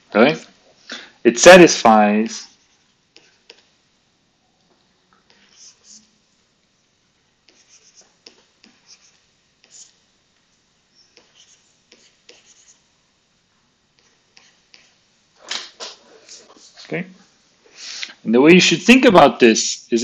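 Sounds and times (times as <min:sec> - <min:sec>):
stylus scratching on tablet screen: 0:02.3 - 0:03.7, 0:05.3 - 0:06.2, 0:07.4 - 0:10.0, 0:11.0 - 0:12.8, 0:14.0 - 0:15.0.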